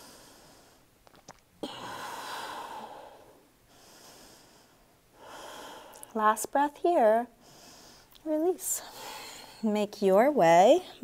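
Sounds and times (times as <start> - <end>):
woman breathing slowly: 0.0 - 0.9, 1.6 - 6.2, 7.4 - 9.7.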